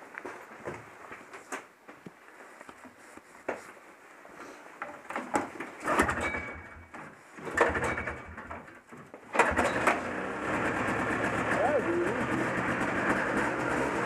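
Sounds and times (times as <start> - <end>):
snowmobile engine pull-start: 5.8 - 6.8, 7.4 - 8.6, 9.3 - 14.0
two-stroke engine running: 9.4 - 14.0.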